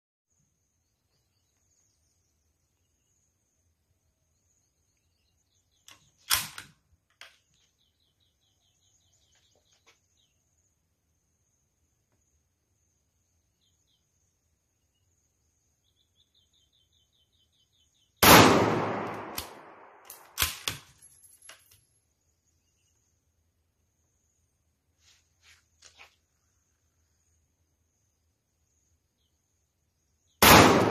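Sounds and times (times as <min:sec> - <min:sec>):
faint chirping: 0:00.3 - 0:06.3, 0:07.2 - 0:18.2, 0:21.0 - 0:30.4
rifle bolt clicks: 0:05.9 - 0:07.4, 0:19.0 - 0:20.8
rifle shot: 0:06.3 - 0:06.7, 0:18.2 - 0:20.8, 0:30.4 - 0:30.9
sharp click: 0:19.0 - 0:20.8.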